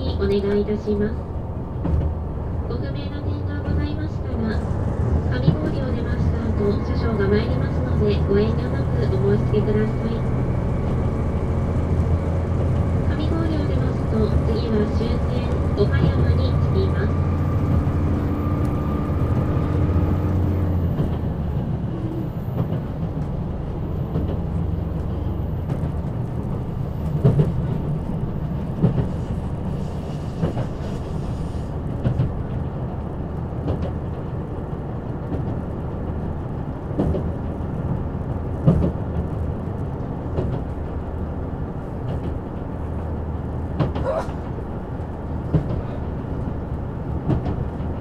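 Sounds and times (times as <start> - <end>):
diesel engine hum: 0.0 - 30.6
train rumbling on rails: 0.0 - 48.0.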